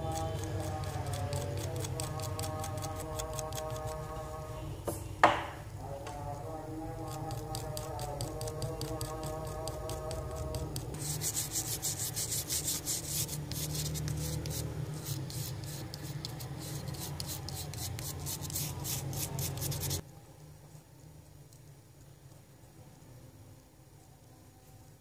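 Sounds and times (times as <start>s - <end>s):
soldering iron scraping circuit board: 0.0s - 4.5s, 6.3s - 20.0s.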